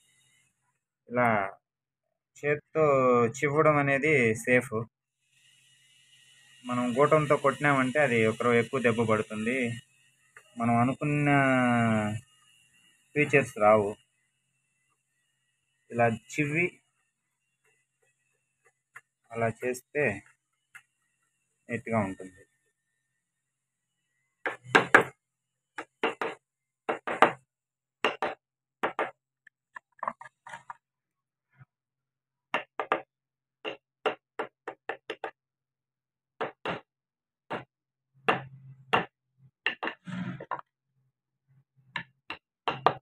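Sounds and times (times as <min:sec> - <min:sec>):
chisel cutting wood: 0:05.2 - 0:19.3, 0:20.1 - 0:30.8, 0:32.5 - 0:35.4.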